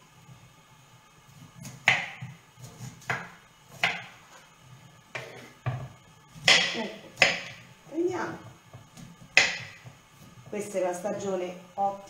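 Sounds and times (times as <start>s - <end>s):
knife chopping on wooden board: 1.6s - 4.2s, 5.1s - 7.6s, 8.4s - 10.5s.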